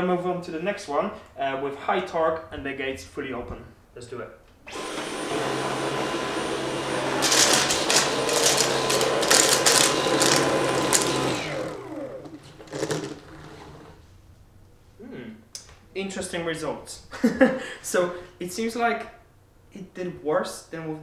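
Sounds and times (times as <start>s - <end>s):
motor winding down whine: 4.7s - 13.9s
vacuum cleaner running: 4.7s - 14.0s
cat litter rattling through vacuum: 7.1s - 11.7s, 12.3s - 14.0s.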